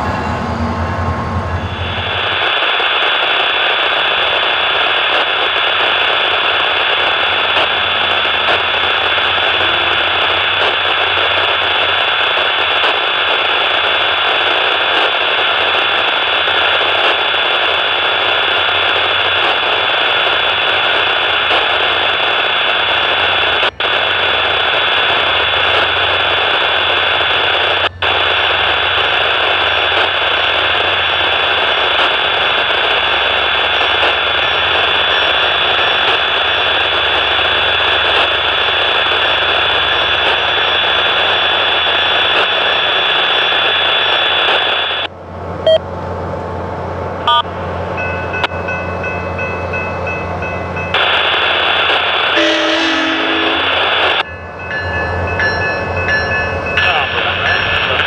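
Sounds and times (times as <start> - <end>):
steady loud hiss: 1.7 - 45.1, 50.9 - 54.2, 55.0 - 58.0
thin high whine: 48.0 - 58.0.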